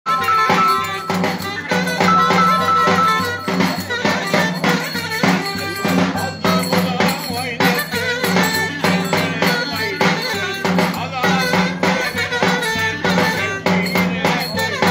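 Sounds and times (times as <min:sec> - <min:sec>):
wind instrument melody: 0:00.0 - 0:06.3.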